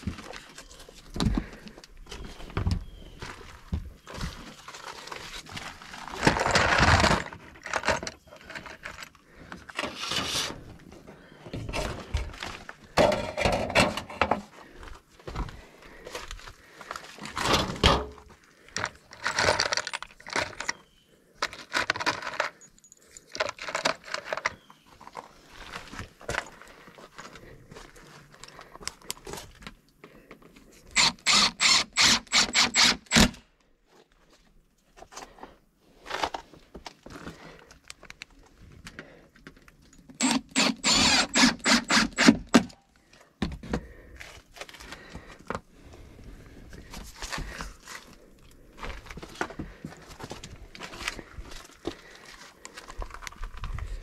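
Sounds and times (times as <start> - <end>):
impact driver driving screws: 30.9 - 33.4, 40.2 - 42.8.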